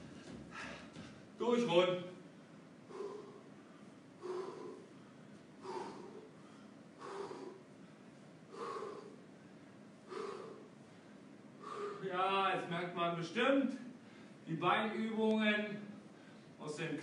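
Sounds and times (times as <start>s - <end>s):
man breathing hard: 0.0s - 1.2s, 2.3s - 12.1s, 13.9s - 14.4s.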